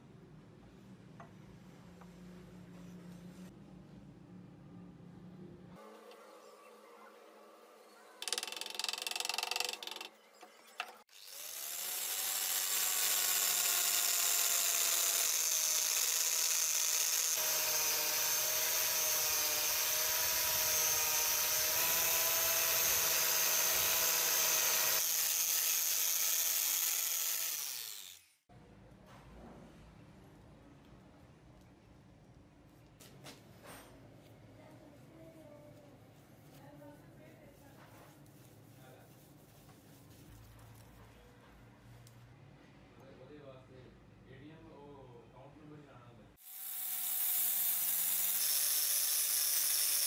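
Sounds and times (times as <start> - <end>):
angle grinder whining: 10.8 - 28.4, 46.4 - 50.0.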